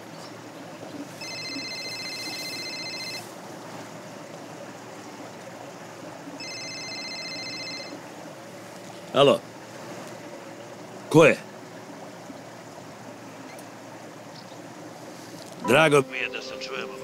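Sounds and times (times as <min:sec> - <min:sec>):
phone ringtone: 0:01.2 - 0:03.2, 0:06.4 - 0:08.0.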